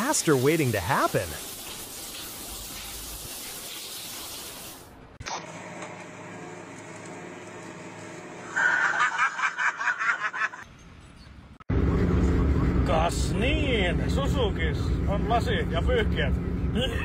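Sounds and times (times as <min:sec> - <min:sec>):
water spraying from toilet: 0:00.0 - 0:04.9
person laughing: 0:08.6 - 0:10.6, 0:16.7 - 0:17.0.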